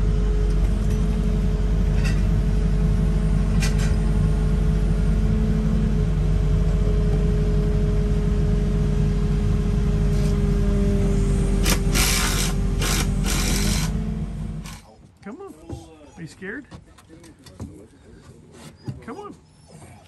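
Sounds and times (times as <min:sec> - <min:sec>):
steady whine: 0:00.0 - 0:14.9
excavator diesel engine running: 0:00.0 - 0:15.0.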